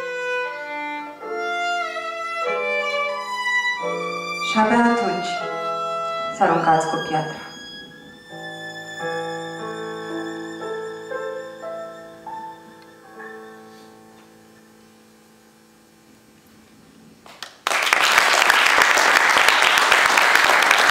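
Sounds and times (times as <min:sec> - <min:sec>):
violin and piano playing: 0:00.0 - 0:14.6
audience applause: 0:17.2 - 0:20.9.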